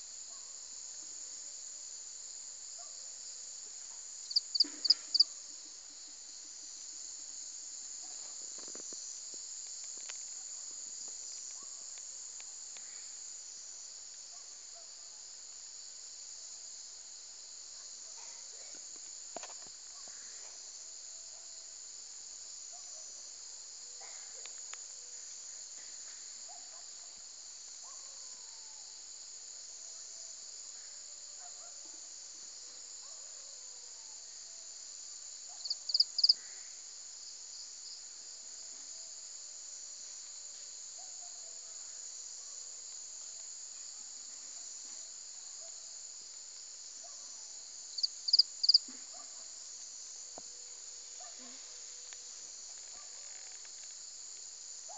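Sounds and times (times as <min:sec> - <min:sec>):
insect chorus: 0:00.0 - 0:54.9
sharp insect chirps: 0:04.2 - 0:05.4, 0:35.5 - 0:36.4, 0:47.9 - 0:54.9.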